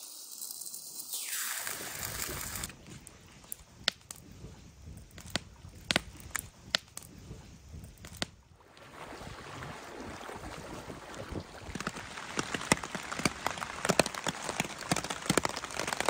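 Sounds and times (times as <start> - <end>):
campfire crackling: 0.2 - 8.4, 11.2 - 16.0.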